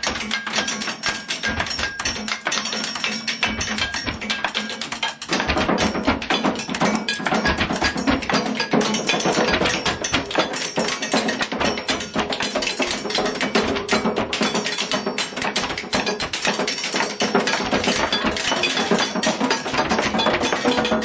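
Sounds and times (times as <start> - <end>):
drumming on kitchen objects: 0.0 - 21.0.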